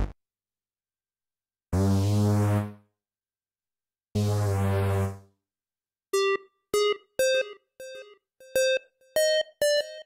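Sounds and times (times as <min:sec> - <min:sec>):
synthesizer stabs melody: 0:06.2 - 0:10.0.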